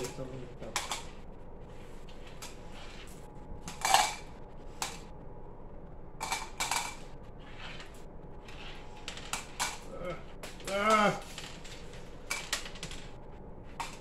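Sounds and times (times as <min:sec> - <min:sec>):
candies clicking into cups: 0:09.0 - 0:13.2, 0:13.8 - 0:14.0.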